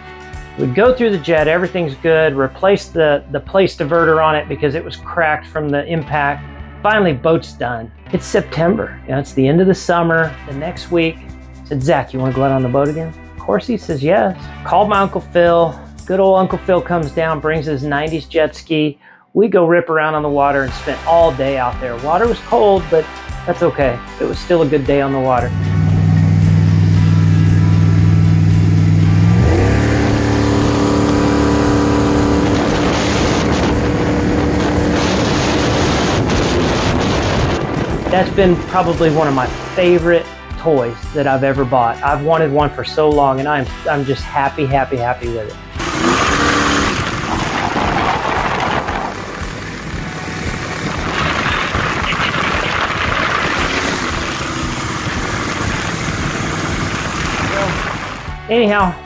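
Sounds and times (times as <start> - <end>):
boat engine revving: 25.1 - 40.1, 45.7 - 58.6
water rushing and spray: 25.5 - 40.0, 45.8 - 58.4.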